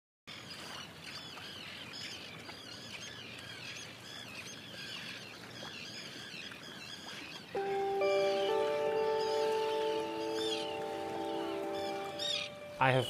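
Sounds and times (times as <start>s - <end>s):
birds calling and chirping: 0.3s - 13.0s
outdoor background hiss: 7.6s - 13.0s.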